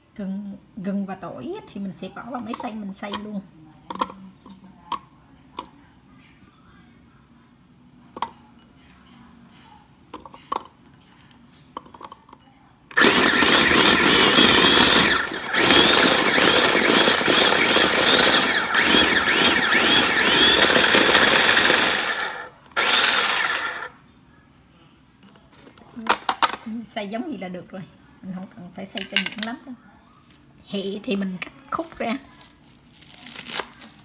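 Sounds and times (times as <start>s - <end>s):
food chopper motor running: 12.9s - 23.9s.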